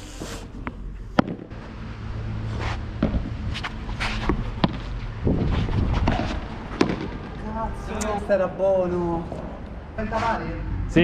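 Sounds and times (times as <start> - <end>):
ball knocking off rackets: 0.6 - 1.5, 3.0 - 3.3, 4.2 - 4.9, 6.0 - 7.4
footsteps scuffling on court: 2.5 - 7.2.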